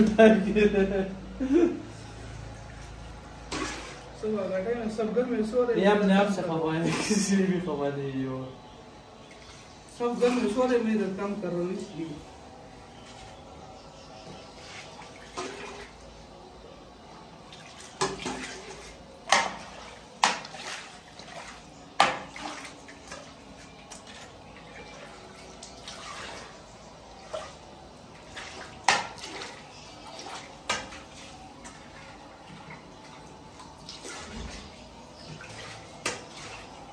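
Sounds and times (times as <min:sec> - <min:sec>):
water splashing and sloshing: 0:01.8 - 0:07.8, 0:08.6 - 0:36.9.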